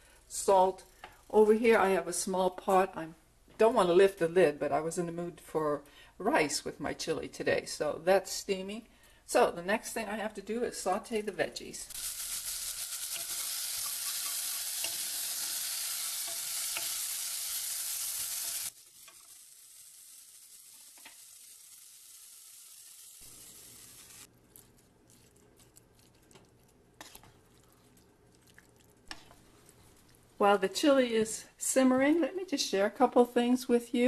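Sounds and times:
vegetables sizzling in oil: 11.8s - 24.3s
wooden spoon stirring in pot: 13.1s - 15.3s, 24.2s - 30.4s.

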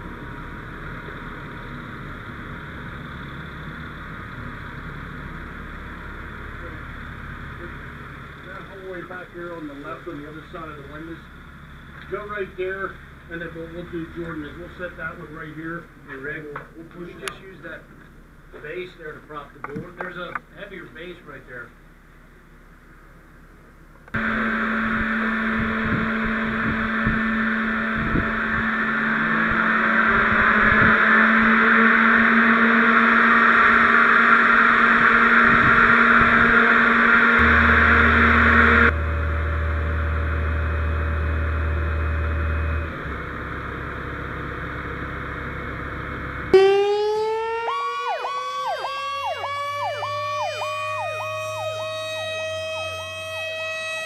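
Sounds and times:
ventilation fan running: 24.2s - 42.2s
electronic siren cycling: 24.2s - 42.9s, 46.5s - 54.0s
mechanical siren wail: 24.2s - 42.9s, 46.5s - 54.0s.

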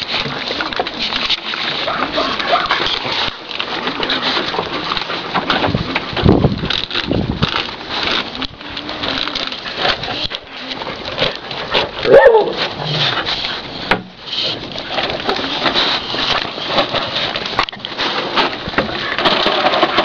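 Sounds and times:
dogs scuffling on dirt: 0.0s - 20.0s
dog yelp: 12.0s - 12.6s.

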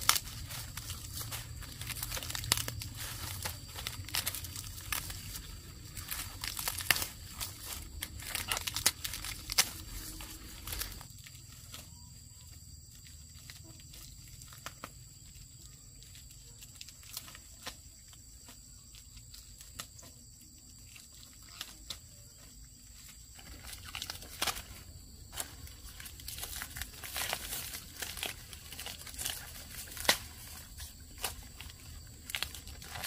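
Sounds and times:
dry leaves rustling and crackling: 0.0s - 33.0s.

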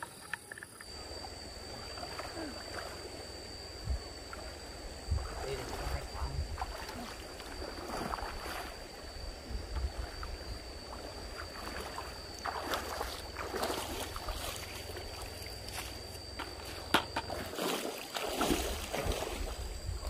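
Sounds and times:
stream water splashing: 0.0s - 20.0s
wind rumble on microphone: 3.7s - 12.3s, 18.5s - 20.0s.

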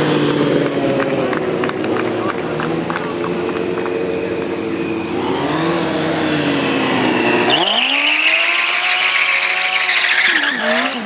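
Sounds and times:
motorcycle engine revving: 0.0s - 11.0s
tyre squealing on pavement: 3.9s - 11.0s.

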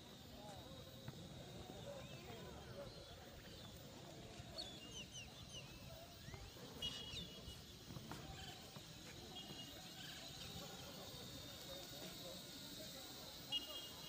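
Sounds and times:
faint outdoor background: 0.0s - 14.0s
birds chirping: 1.6s - 11.2s.

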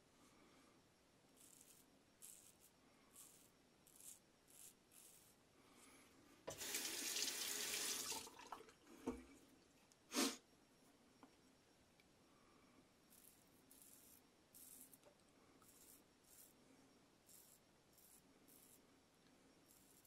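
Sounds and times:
tap running into sink: 6.5s - 9.2s.

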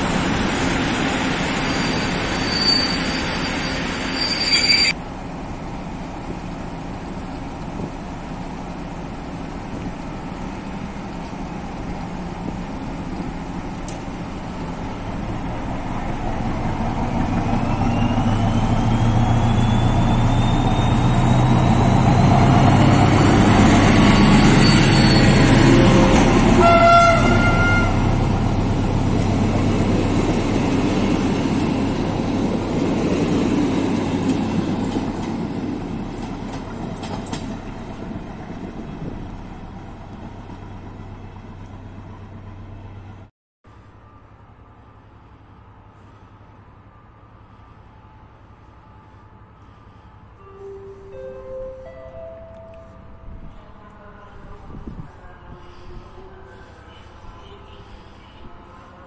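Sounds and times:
train coaches rolling by: 0.0s - 43.3s
diesel locomotive engine drone: 0.0s - 59.0s
train horn toot: 24.2s - 28.2s.

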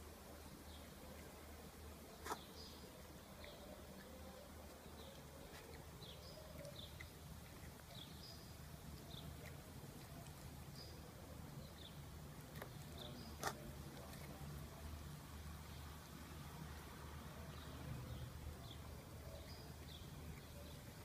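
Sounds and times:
small birds chirping: 0.0s - 21.0s
cat chewing wet food: 0.2s - 21.0s.

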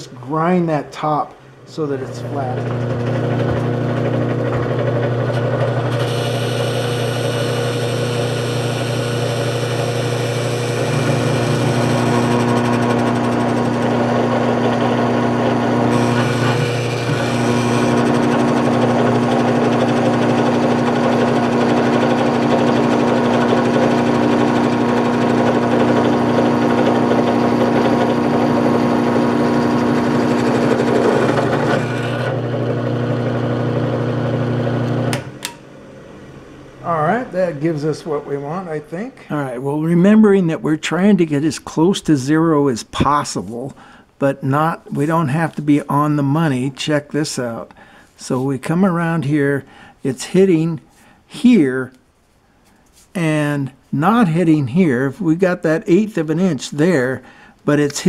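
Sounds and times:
drill press motor humming: 2.0s - 36.8s
drill bit cutting metal: 2.4s - 35.0s.

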